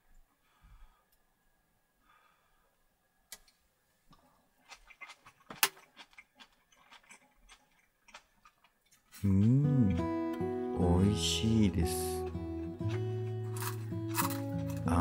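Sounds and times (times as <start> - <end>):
crisp noodles crunching: 4.6 - 10.1, 12.7 - 15.0.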